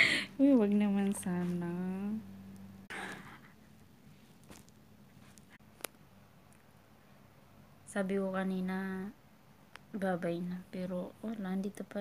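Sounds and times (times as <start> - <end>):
low hum: 0.0 - 9.3.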